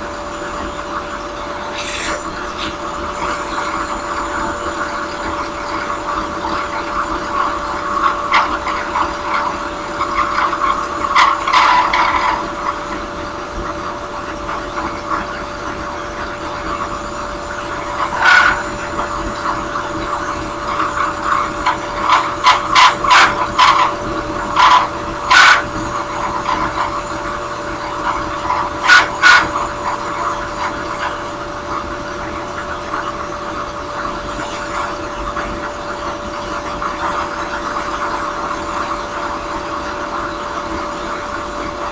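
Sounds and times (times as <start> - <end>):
drill press humming: 0.0 - 37.6
rough grinding rasp: 1.7 - 3.9.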